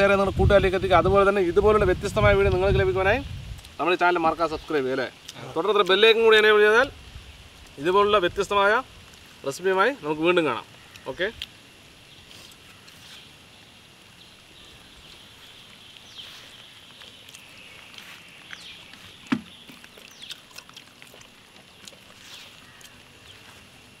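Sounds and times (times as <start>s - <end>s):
bird chirps: 12.0s - 23.7s.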